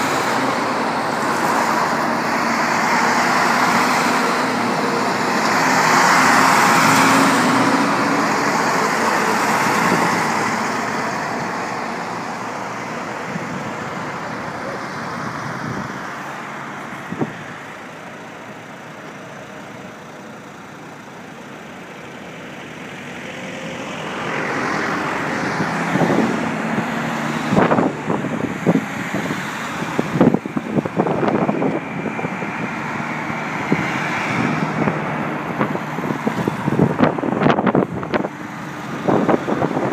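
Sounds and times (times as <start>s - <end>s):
road traffic passing: 0.0s - 39.9s
trucks driving past: 0.0s - 39.9s.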